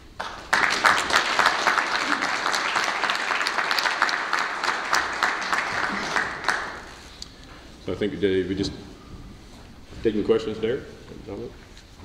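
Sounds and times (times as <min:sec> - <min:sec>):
audience applauding: 0:00.2 - 0:07.0.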